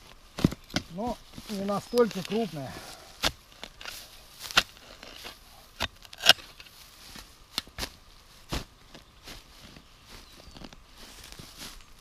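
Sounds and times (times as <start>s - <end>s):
shovel chopping into soil: 3.2s - 9.0s.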